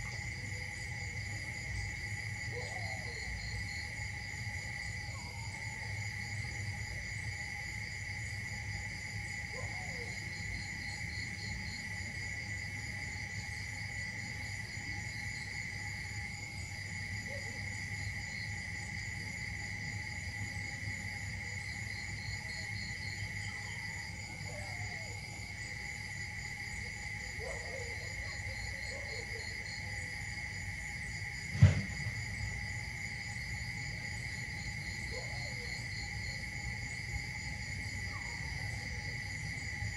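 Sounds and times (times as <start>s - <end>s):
insect chorus buzzing: 0.0s - 39.9s
loud thump: 31.5s - 32.2s.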